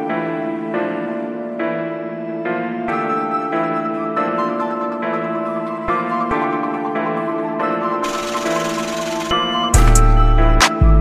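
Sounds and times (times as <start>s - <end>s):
held chords: 4.4s - 11.0s
deep bass beat: 9.8s - 11.0s.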